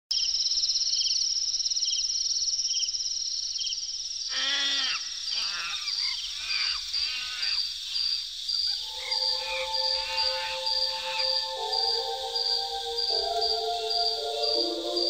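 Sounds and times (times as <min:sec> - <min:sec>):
ambient music: 0:08.8 - 0:15.0.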